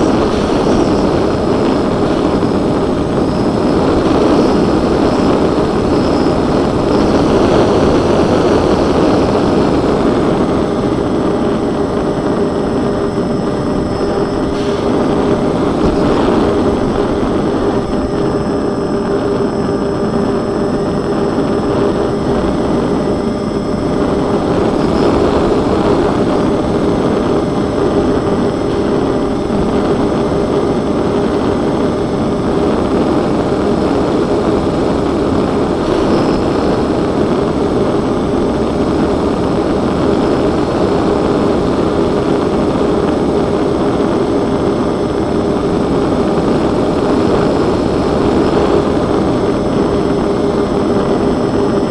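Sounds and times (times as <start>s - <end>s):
propeller motors droning: 0.0s - 51.9s
rush of airflow: 0.0s - 51.9s.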